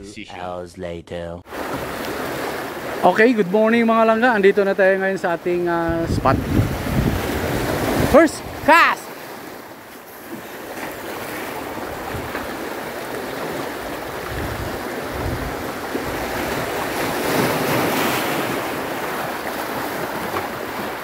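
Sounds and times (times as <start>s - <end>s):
surf washing on shore: 1.5s - 21.0s
wave breaking: 1.5s - 21.0s
wind on microphone: 5.9s - 8.7s, 11.8s - 12.5s, 13.9s - 18.0s.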